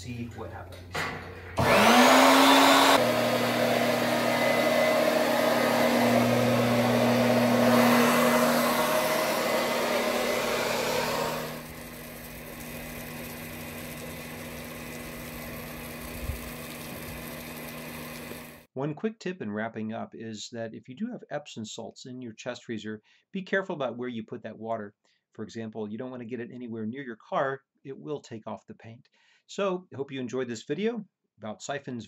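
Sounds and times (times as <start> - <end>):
pump motor humming: 1.6 - 18.7
water rushing through pump: 1.6 - 18.7.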